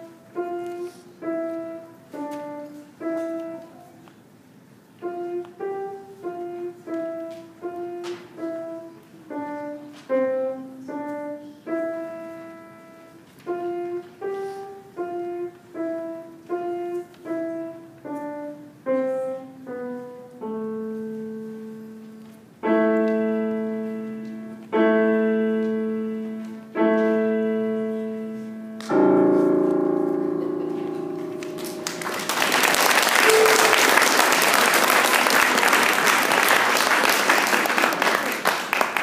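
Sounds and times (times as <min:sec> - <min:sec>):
grand piano playing: 0:00.0 - 0:03.9, 0:05.0 - 0:37.6
audience applause: 0:31.4 - 0:39.0.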